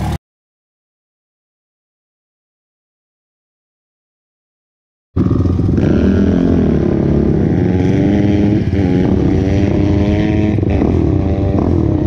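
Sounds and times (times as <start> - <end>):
atv engine accelerating: 5.2 - 12.0.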